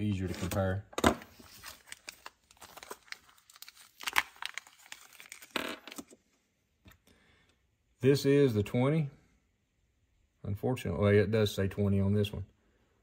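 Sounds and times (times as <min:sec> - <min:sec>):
package crinkling: 0:01.4 - 0:06.2
packaging ripping: 0:01.4 - 0:06.2.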